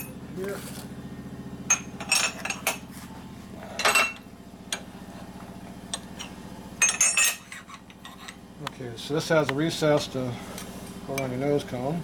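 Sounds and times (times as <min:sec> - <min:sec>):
steady low hum: 0:00.0 - 0:12.0
metal parts clinking: 0:06.8 - 0:08.3.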